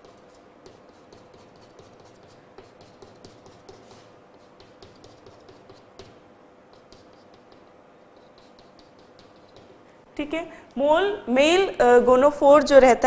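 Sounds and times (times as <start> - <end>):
chalk scratching on blackboard: 0.0 - 9.8
faint steady hum: 0.0 - 13.0.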